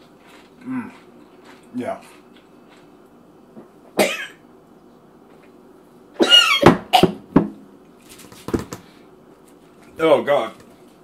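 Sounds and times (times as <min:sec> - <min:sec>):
man coughing: 0:04.0 - 0:04.4, 0:06.2 - 0:07.1.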